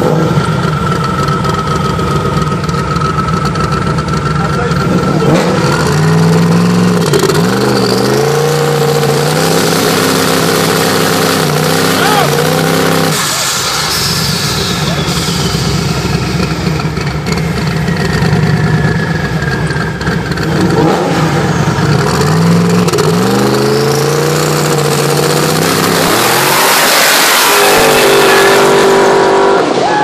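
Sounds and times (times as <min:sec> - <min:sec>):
car engines idling and revving: 0:00.0 - 0:30.0
cars accelerating through gears: 0:04.8 - 0:16.2, 0:20.4 - 0:30.0.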